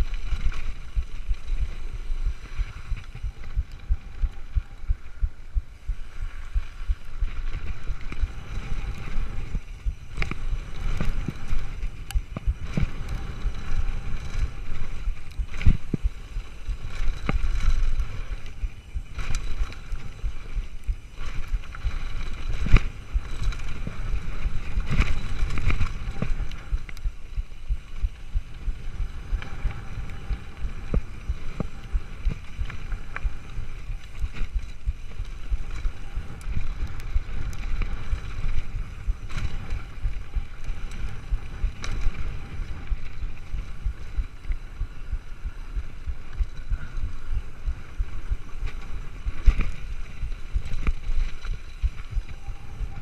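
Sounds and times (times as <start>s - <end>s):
bike clicks and rattles: 0.0s - 53.0s
wind buffeting microphone: 0.0s - 53.0s.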